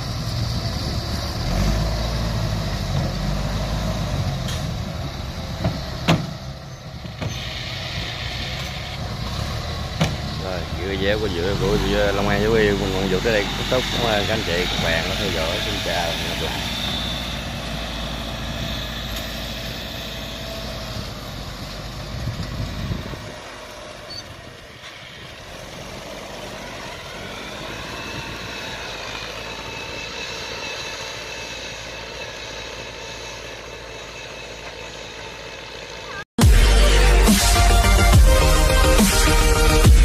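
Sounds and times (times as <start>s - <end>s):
tracked truck engine running: 0.0s - 40.0s
electronic music: 36.4s - 40.0s.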